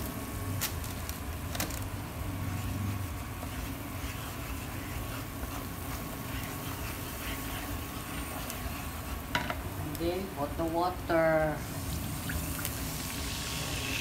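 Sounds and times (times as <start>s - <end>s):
gravy sizzling and bubbling: 0.0s - 14.0s
wooden spoon scraping pan: 2.5s - 9.7s.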